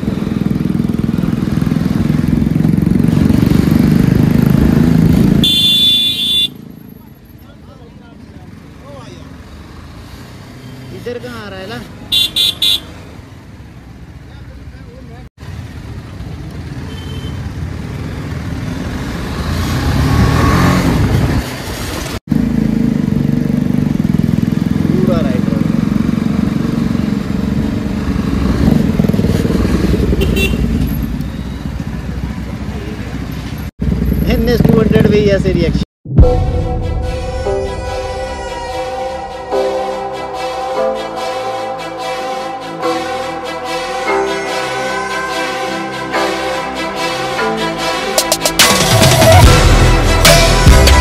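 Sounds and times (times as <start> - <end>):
motorcycle engine running: 0.0 - 7.2, 22.3 - 35.6
road noise: 0.0 - 51.0.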